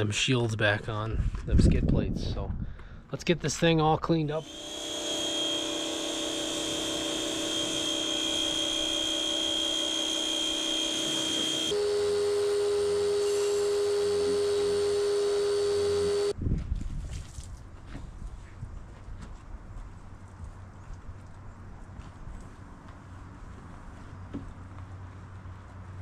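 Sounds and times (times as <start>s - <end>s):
pressure washer whining: 4.4s - 16.3s.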